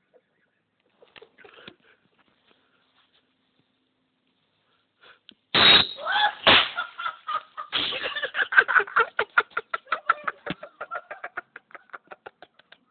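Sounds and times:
bottle rocket bursting: 5.5s - 6.8s
people laughing: 6.1s - 12.9s.

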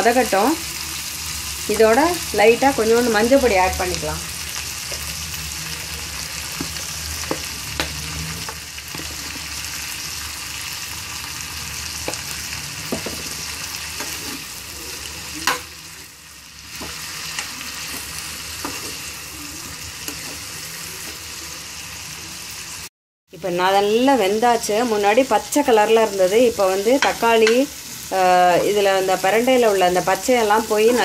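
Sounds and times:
food sizzling in oil: 0.0s - 31.0s
metal spoon clinking on pan: 15.4s - 15.7s.

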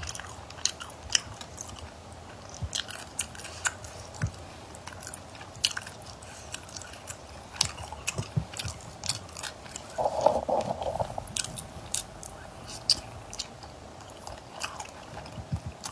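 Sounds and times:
wet chewing: 0.1s - 15.9s
mouth clicks and smacks: 7.6s - 13.6s.

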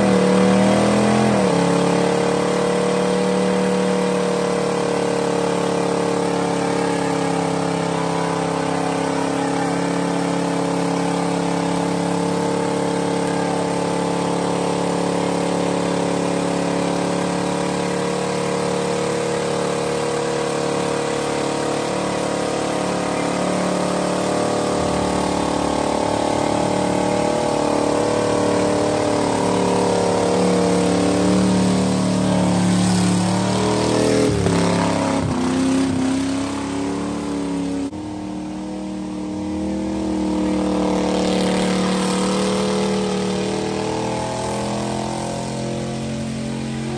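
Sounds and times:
tires spinning on pavement: 0.0s - 46.9s
truck engine at high revs: 0.0s - 46.9s.

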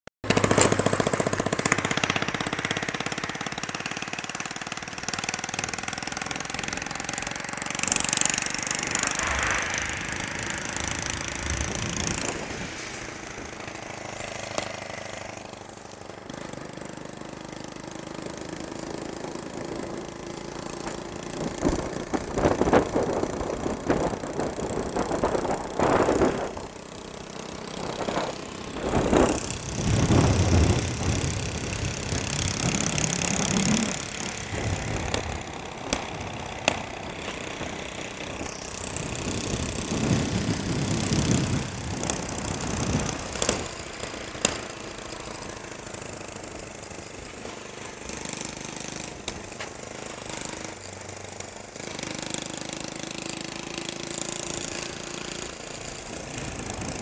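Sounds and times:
vehicle engine running: 0.2s - 57.0s
wind buffeting microphone: 8.3s - 14.2s, 28.0s - 36.6s, 39.0s - 43.8s.

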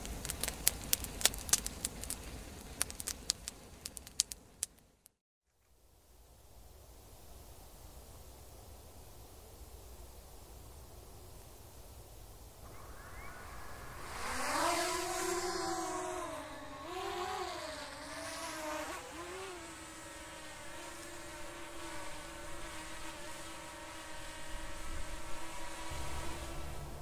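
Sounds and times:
engine running: 12.7s - 27.0s.

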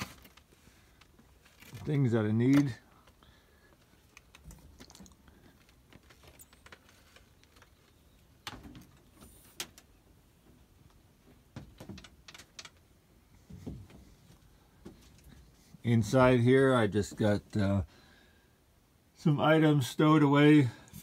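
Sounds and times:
faint clicks and knocks: 0.0s - 12.9s.

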